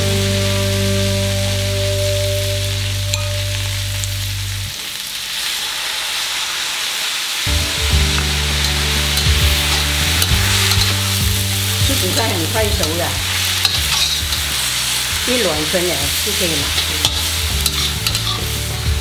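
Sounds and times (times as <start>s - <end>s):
greens sizzling in hot oil: 0.0s - 19.0s
metal spatula scraping a wok: 8.6s - 18.8s.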